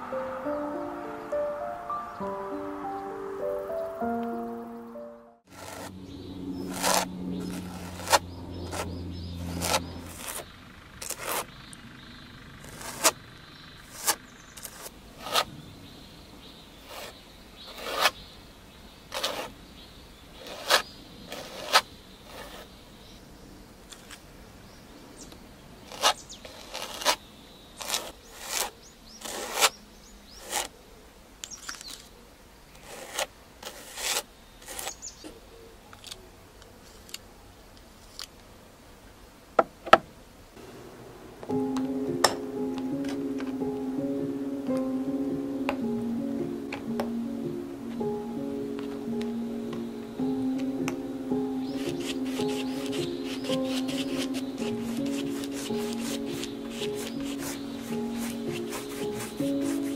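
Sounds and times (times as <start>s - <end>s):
palette knife scraping paste: 5.5s - 5.9s, 6.6s - 11.5s, 12.6s - 13.2s, 13.8s - 15.5s, 16.8s - 18.2s, 19.1s - 19.6s, 20.4s - 22.8s, 25.9s - 27.2s, 27.8s - 30.7s, 32.7s - 35.1s, 51.6s - 59.9s.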